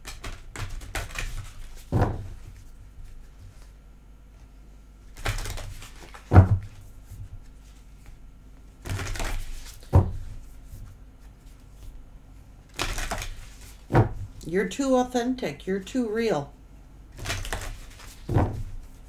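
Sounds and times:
cards riffle shuffling: 5.2 - 6.3, 8.8 - 9.9, 12.7 - 13.9, 17.2 - 19.0.

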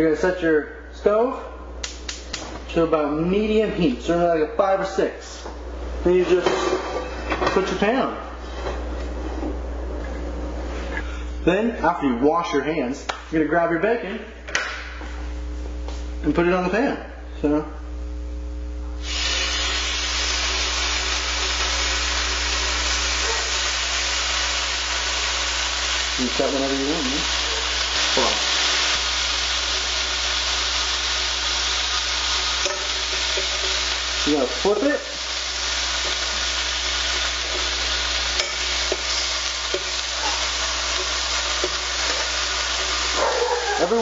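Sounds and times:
bacon sizzling in a frying pan: 19.0 - 44.0.

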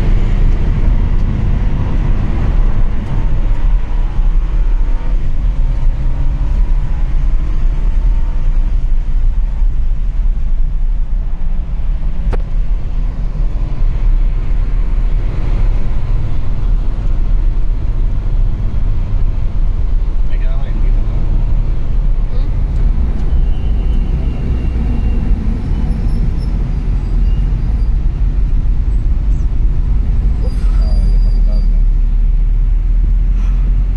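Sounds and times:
car engine under load: 0.0 - 30.8
road and wind noise: 0.0 - 33.9.

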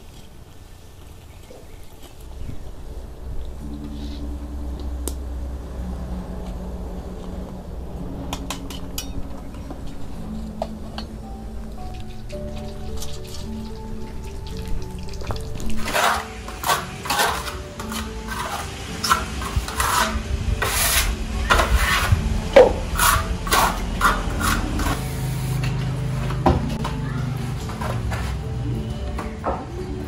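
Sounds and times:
quiet background music: 0.0 - 30.0
hand tool scraping plaster wall: 15.8 - 25.6.

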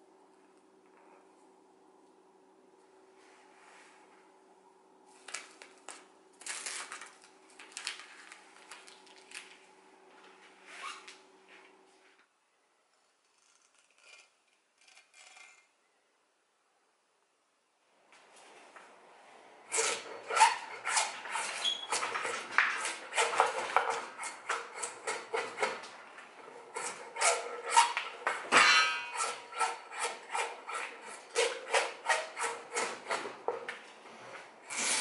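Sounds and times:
drawknife scraping bark: 13.2 - 15.7, 19.7 - 25.8, 26.6 - 33.3.

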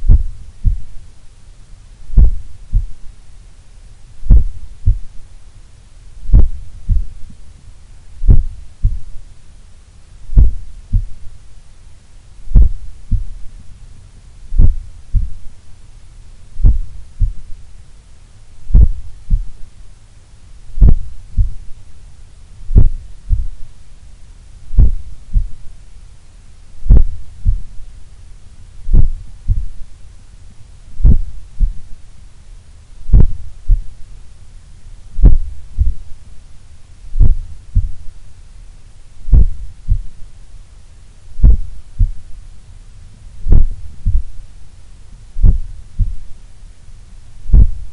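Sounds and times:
heartbeat through stethoscope: 0.0 - 1.0, 2.1 - 3.1, 4.2 - 5.2, 6.2 - 7.4, 8.2 - 9.2, 10.3 - 11.4, 12.5 - 13.5, 14.5 - 15.6, 16.6 - 17.6, 18.7 - 19.7, 20.8 - 21.8, 22.6 - 23.7, 24.7 - 25.7, 26.8 - 27.9, 28.8 - 29.9, 31.0 - 31.9, 33.0 - 34.0, 35.2 - 36.2, 37.2 - 38.2, 39.2 - 40.2, 41.4 - 42.2, 43.4 - 44.4, 45.4 - 46.3, 47.5 - 47.9.

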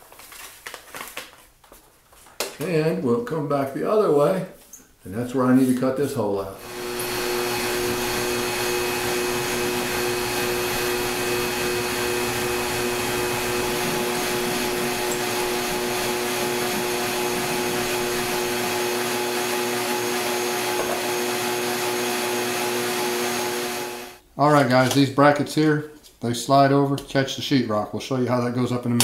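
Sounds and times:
shop vacuum humming: 6.6 - 24.2.

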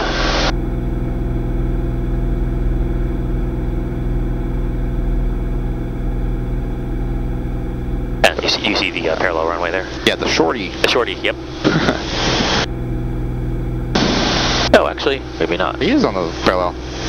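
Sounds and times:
airplane engine and propeller drone: 0.0 - 17.0.

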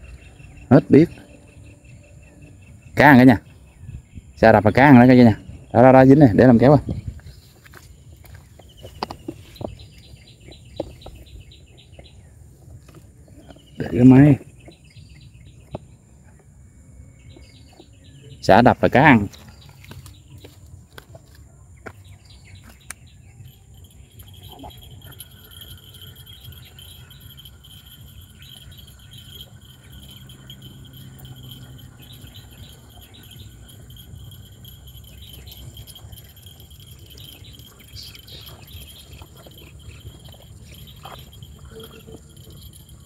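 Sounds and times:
lower insect trill: 22.1 - 43.0
insects chirring high-pitched: 22.2 - 43.0.

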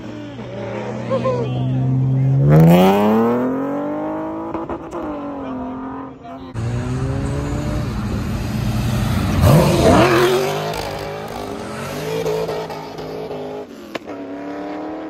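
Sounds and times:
car accelerating hard: 0.0 - 15.0
another engine revving: 6.6 - 13.7.

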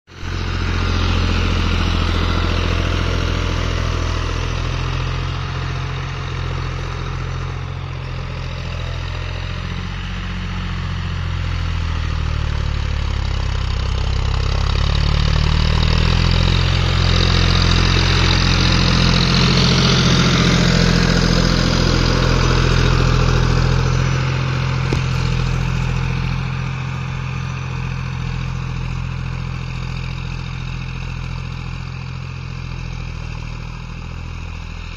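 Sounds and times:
tractor engine running under load: 0.1 - 34.9.

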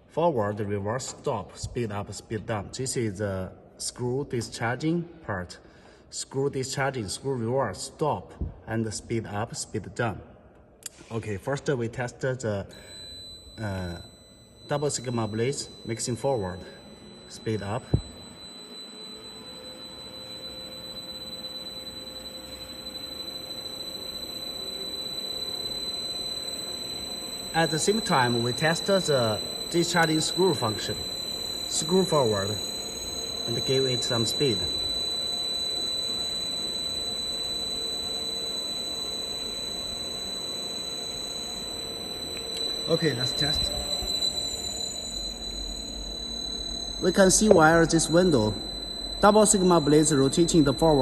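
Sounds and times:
mixer drive whining: 12.7 - 51.0.

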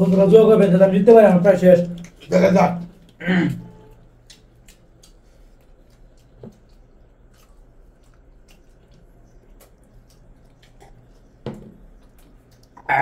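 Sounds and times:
chewing: 3.9 - 13.0
fingers mixing wet rice: 4.2 - 12.8.

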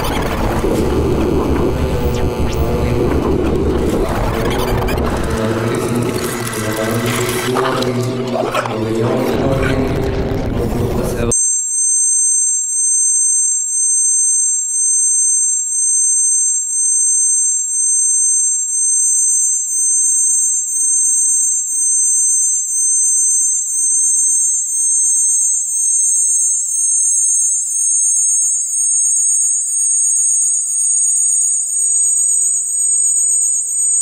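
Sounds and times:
alarm-like synth tones: 0.0 - 9.6, 11.3 - 34.0
warbling tone: 0.0 - 11.3.

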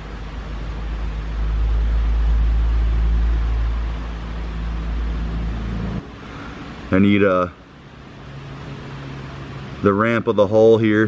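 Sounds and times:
deep rumble: 0.0 - 6.0
low mechanical hum: 0.0 - 11.0.

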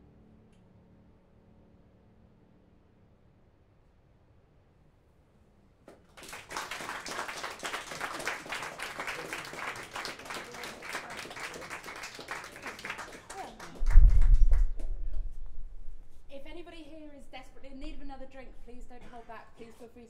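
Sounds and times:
audience applauding: 5.9 - 14.9.

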